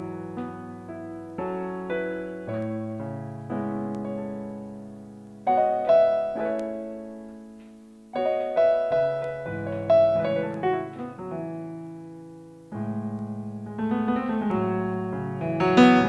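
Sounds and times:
keyboard piano arpeggios: 0:00.0 - 0:16.0.

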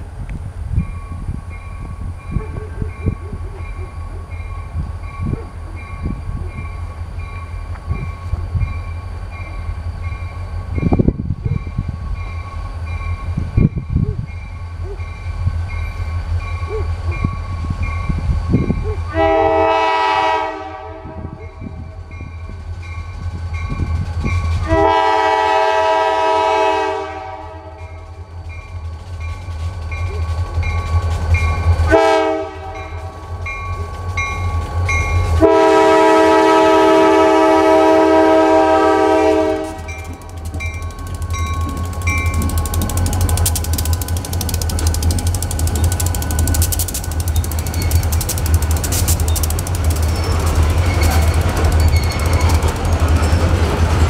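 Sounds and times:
low train rumble: 0:00.0 - 0:54.0
crossing bell ringing: 0:00.8 - 0:18.8, 0:27.7 - 0:31.9, 0:32.6 - 0:35.5, 0:39.5 - 0:53.5
locomotive air horn: 0:19.1 - 0:21.4, 0:24.6 - 0:27.9, 0:31.9 - 0:33.1, 0:35.3 - 0:40.2.

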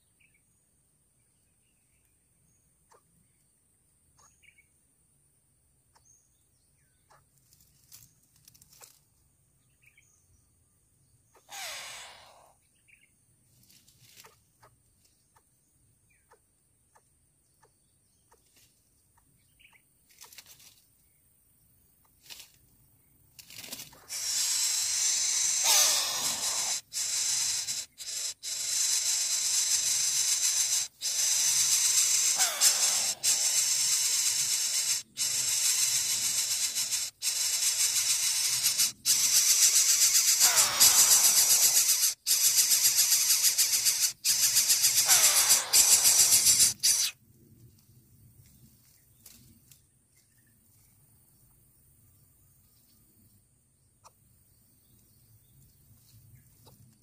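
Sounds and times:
short falling bird call: 0:11.4 - 0:12.5, 0:24.1 - 0:29.7, 0:31.0 - 0:34.2, 0:39.8 - 0:42.2, 0:44.6 - 0:47.1
nestlings hissing: 0:11.5 - 0:12.6, 0:23.9 - 0:47.2.

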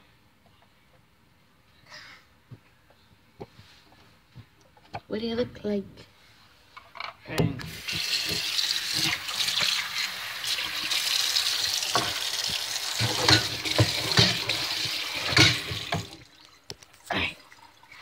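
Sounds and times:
tap water running into sink: 0:07.7 - 0:16.5.

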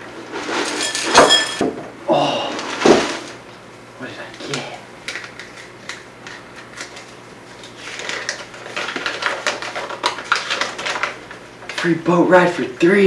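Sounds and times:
paper crinkling and rustling: 0:04.4 - 0:12.6.

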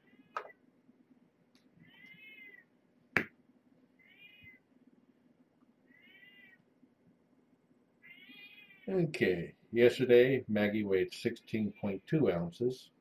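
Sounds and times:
kitten meowing: 0:01.8 - 0:02.6, 0:04.0 - 0:04.6, 0:05.9 - 0:06.6, 0:08.0 - 0:08.8.

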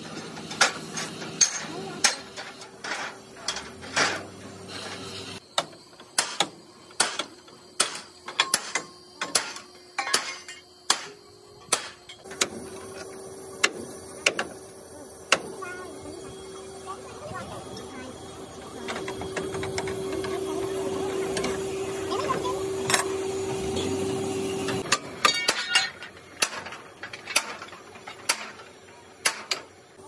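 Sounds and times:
hammer striking steel frame: 0:05.6 - 0:12.6.

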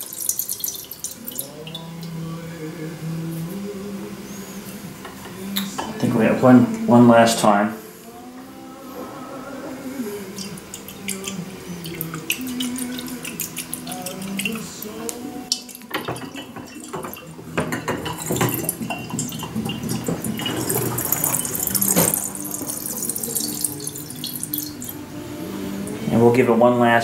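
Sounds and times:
water draining with gurgle: 0:00.0 - 0:02.3, 0:09.6 - 0:25.0
glass clicks and knocks: 0:15.6 - 0:20.8.

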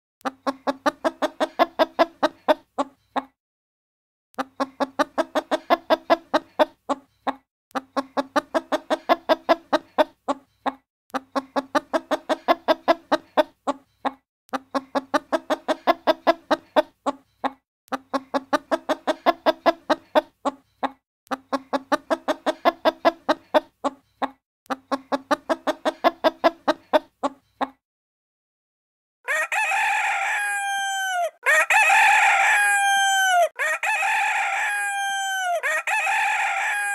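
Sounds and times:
hen clucking: 0:00.2 - 0:03.3, 0:04.4 - 0:27.8, 0:29.3 - 0:36.9
rooster crowing: 0:29.3 - 0:36.9.

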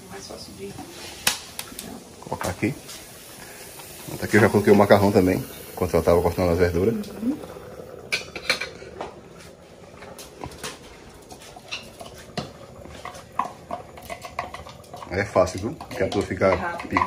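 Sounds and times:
pot lids and pans clinking: 0:10.5 - 0:17.0.

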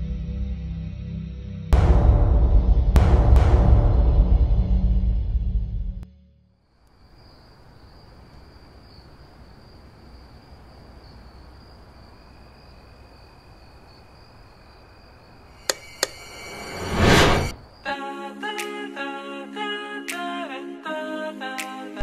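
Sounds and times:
whoosh effect: 0:16.2 - 0:17.7.

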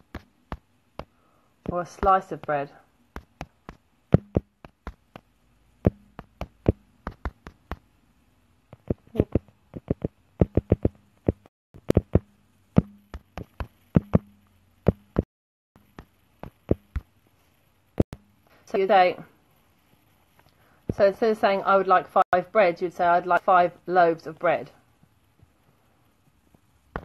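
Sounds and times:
sharp taps and clicks: 0:00.0 - 0:08.0, 0:08.7 - 0:17.1.

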